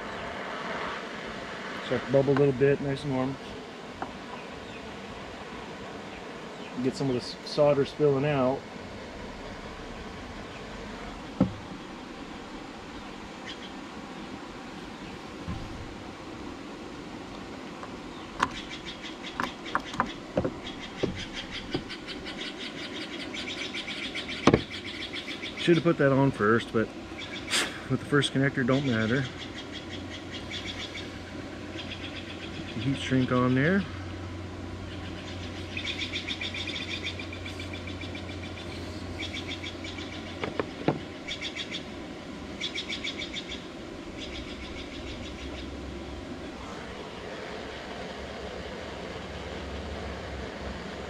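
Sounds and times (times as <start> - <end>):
low hum: 0.0 - 51.0
steady hiss: 0.0 - 51.0
songbird trilling: 6.0 - 8.6, 13.0 - 13.8, 18.0 - 34.2, 34.8 - 46.0
light clicks and knocks: 19.3 - 21.9, 40.4 - 41.1.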